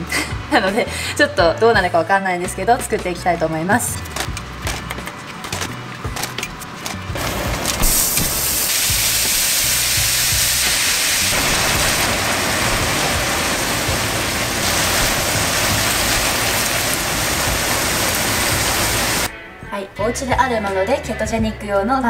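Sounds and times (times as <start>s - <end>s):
food sizzling in a pan: 7.2s - 19.3s.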